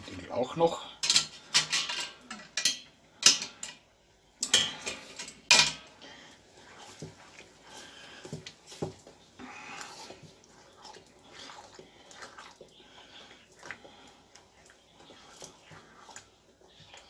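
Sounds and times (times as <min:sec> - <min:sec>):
metal utensils clanking on pots: 0:01.0 - 0:05.9.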